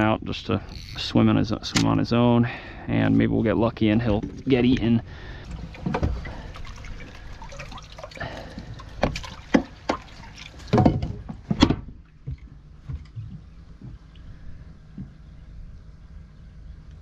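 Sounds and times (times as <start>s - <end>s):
water sloshing and dripping: 3.9s - 15.1s
net splashing in water: 5.7s - 10.8s.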